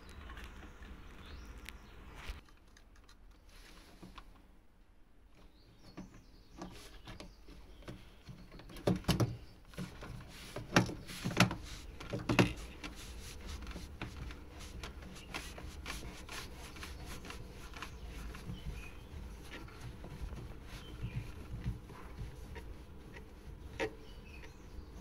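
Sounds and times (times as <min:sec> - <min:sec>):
plastic fittings clicking and rubbing: 0:06.0 - 0:25.0.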